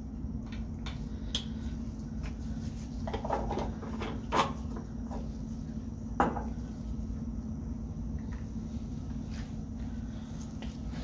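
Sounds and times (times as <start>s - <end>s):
steady low hum: 0.0s - 11.0s
bottles knocking and clinking: 6.2s - 6.5s.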